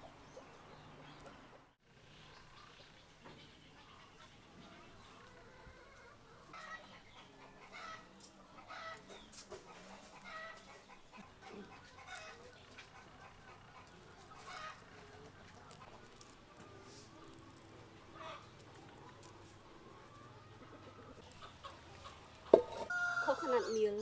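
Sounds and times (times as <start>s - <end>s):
hens clucking: 3.7s - 24.0s
eggshells crackling as peeled: 13.8s - 19.9s.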